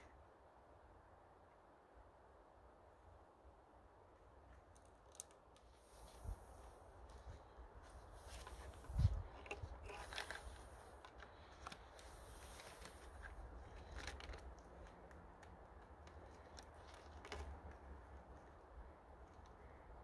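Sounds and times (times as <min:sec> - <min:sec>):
string rustling and scratchy clicks: 0:04.5 - 0:19.6.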